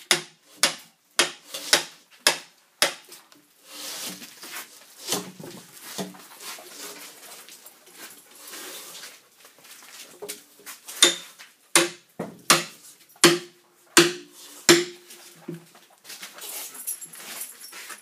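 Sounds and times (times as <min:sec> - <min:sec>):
axe chopping into log: 0:11.0 - 0:11.2, 0:11.8 - 0:15.0.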